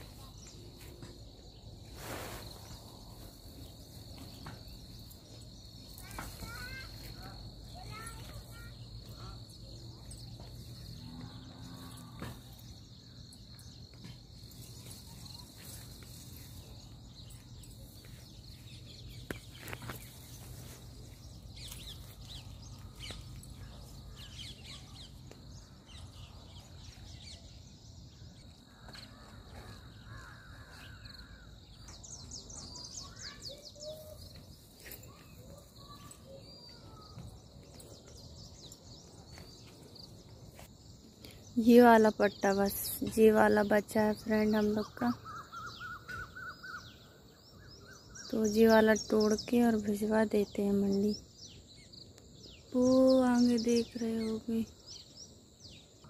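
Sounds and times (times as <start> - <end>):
birds chirping and calling: 12.0 - 40.1, 41.2 - 56.0.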